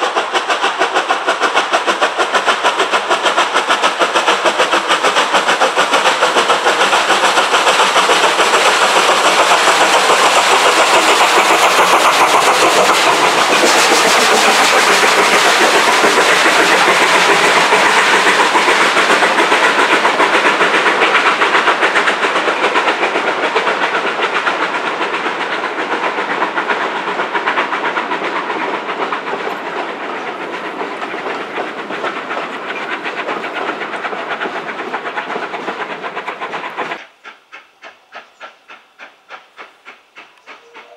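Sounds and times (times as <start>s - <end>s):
steam locomotive chuffing: 0.0s - 40.9s.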